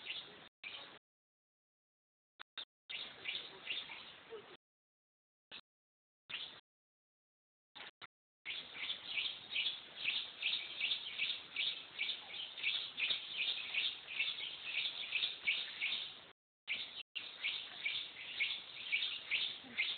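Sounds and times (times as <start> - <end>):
birds chirping: 0.0 - 1.0, 2.9 - 4.6, 6.3 - 6.6, 8.5 - 19.9.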